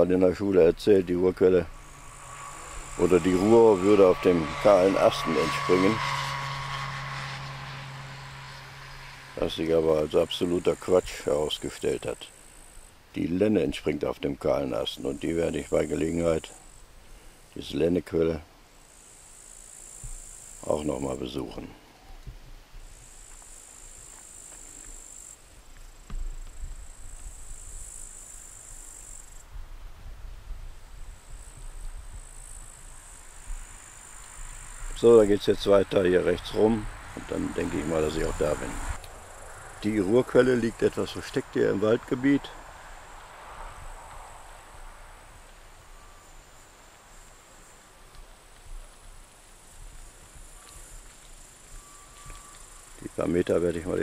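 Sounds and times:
insects chirring: 0.0 - 29.6, 30.7 - 54.0
low rumble: 0.1 - 9.6.

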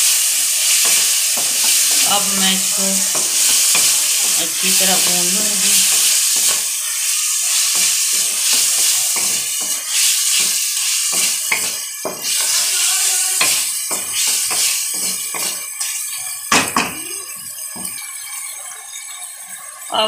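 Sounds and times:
high sizzle: 0.0 - 20.0
wooden spatula scraping a pan: 0.6 - 16.1.

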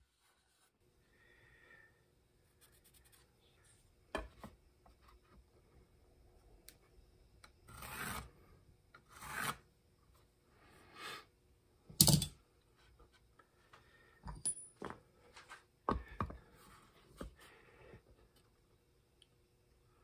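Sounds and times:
pencil scratching on metal: 7.7 - 8.3, 9.1 - 9.6.

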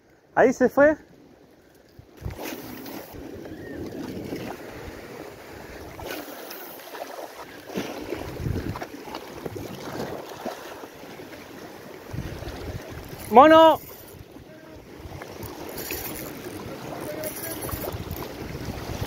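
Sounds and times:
wind gusting on microphone: 2.0 - 6.3, 7.7 - 10.4, 12.0 - 19.0
waves splashing against rocks: 2.0 - 19.0.

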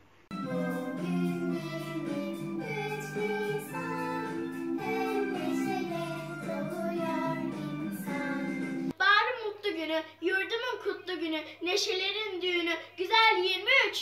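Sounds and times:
instrumental backing music: 0.3 - 8.9
child singing: 0.4 - 8.6.

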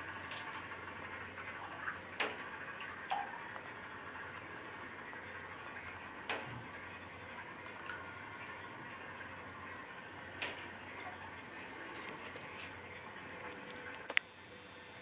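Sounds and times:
sharp water drips: 0.0 - 14.3
low hiss and hum: 0.0 - 15.0.

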